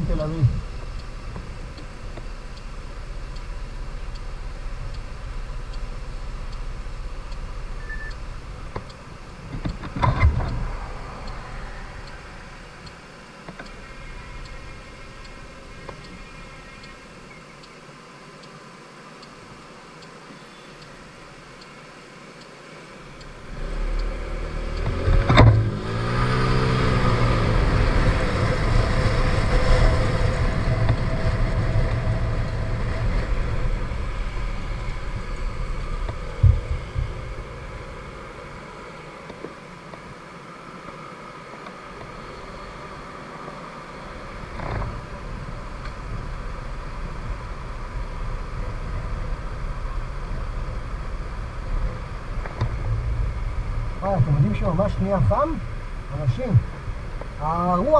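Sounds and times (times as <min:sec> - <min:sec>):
wind on microphone: 0:24.8 - 0:38.8.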